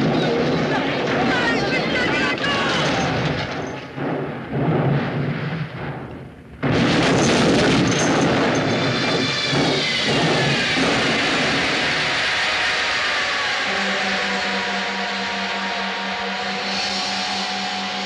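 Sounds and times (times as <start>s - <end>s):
car crash rumbling: 0.0s - 13.4s
glass shattering: 6.8s - 10.4s.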